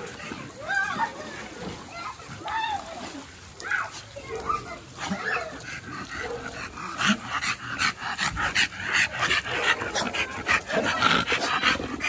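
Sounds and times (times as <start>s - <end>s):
dog panting rapidly: 5.0s - 12.0s.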